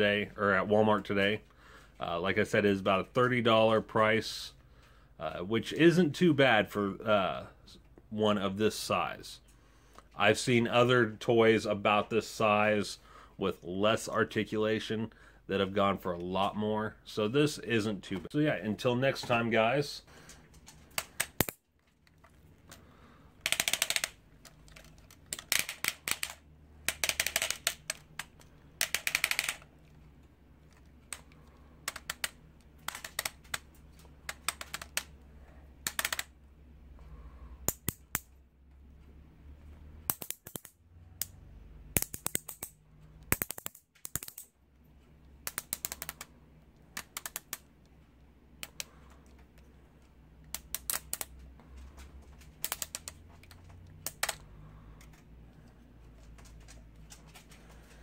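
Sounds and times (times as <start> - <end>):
plastic action figure joints clicking: 23.4 - 29.7, 30.7 - 35.1, 35.8 - 36.3, 40.1 - 41.3, 42.0 - 44.5, 45.4 - 46.3, 47.0 - 47.7, 50.5 - 51.4, 52.6 - 54.4.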